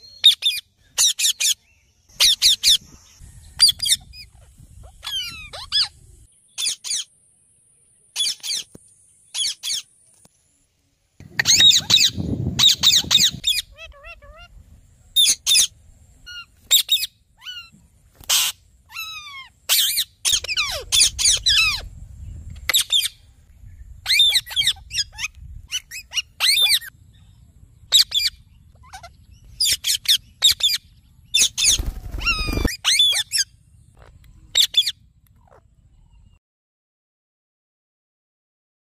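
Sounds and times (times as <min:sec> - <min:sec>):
parakeets screeching: 0:03.6 - 0:06.0, 0:06.6 - 0:07.1, 0:11.2 - 0:14.5, 0:16.3 - 0:21.9, 0:24.0 - 0:26.9, 0:27.9 - 0:35.6
low rumble: 0:26.9 - 0:32.6.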